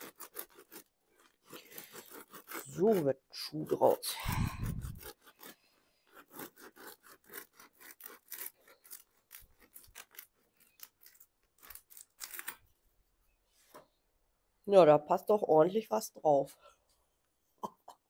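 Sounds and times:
bread knife sawing crusty bread: 0.0s - 12.6s.

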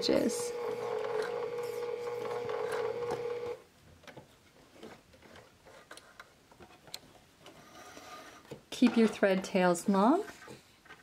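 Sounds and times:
sewing machine stitching: 0.2s - 3.6s.

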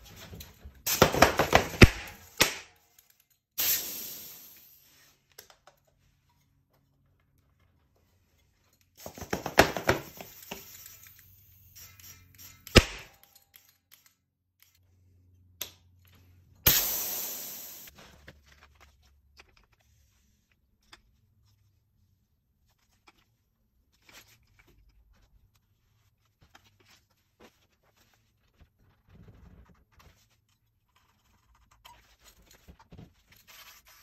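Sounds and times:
compressed air hissing: 3.6s - 4.9s, 16.7s - 17.9s.

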